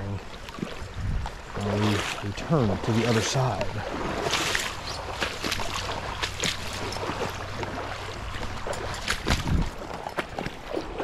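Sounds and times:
water sloshing and splashing: 0.0s - 11.0s
clicks and knocks underfoot: 8.3s - 10.7s.

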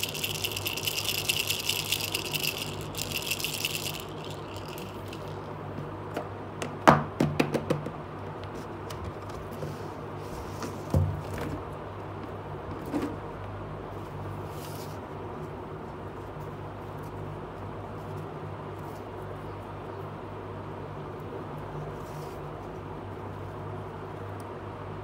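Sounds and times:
steady low hum: 0.0s - 6.8s.

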